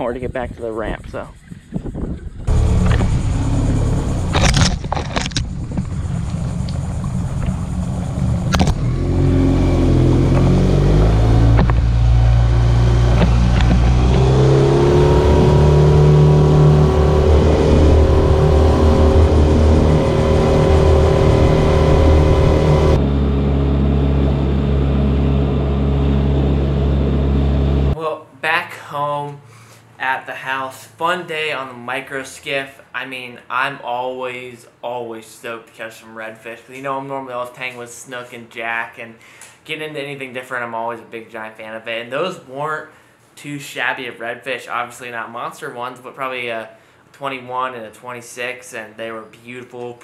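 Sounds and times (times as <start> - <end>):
outboard motor running: 2.5 - 28.0
sharp knocks: 11.4 - 12.3, 13.1 - 14.5.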